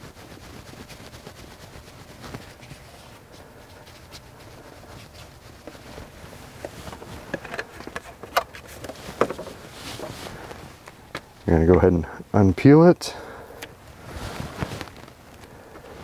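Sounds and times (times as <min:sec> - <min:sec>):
cloth rubbing on door frame: 0:00.0 - 0:10.8, 0:13.8 - 0:16.0
handling scrapes: 0:00.0 - 0:11.0, 0:13.8 - 0:16.0.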